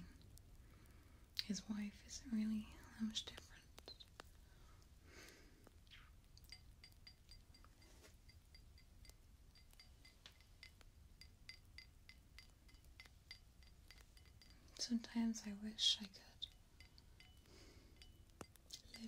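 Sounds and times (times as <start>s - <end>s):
light tapping on glass: 6.4s - 15.2s, 15.9s - 19.0s.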